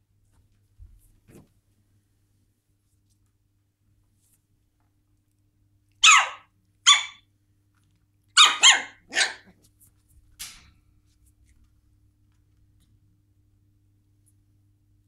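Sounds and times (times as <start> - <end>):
puppy yipping: 6.0 - 7.2, 8.4 - 9.5.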